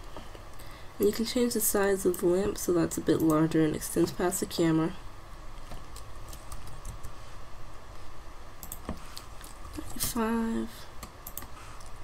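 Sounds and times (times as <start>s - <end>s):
keyboard clicks: 8.6s - 9.3s, 11.0s - 12.0s
computer mouse clicks: 8.6s - 10.1s, 11.0s - 12.0s.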